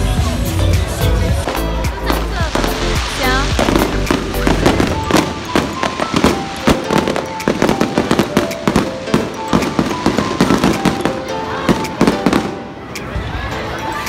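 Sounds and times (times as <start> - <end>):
music playing: 0.0 - 14.0
fireworks bangs and crackles: 1.4 - 13.3.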